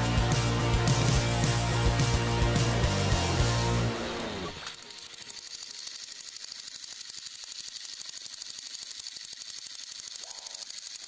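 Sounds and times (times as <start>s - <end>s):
toy train motors clicking: 4.1s - 11.0s.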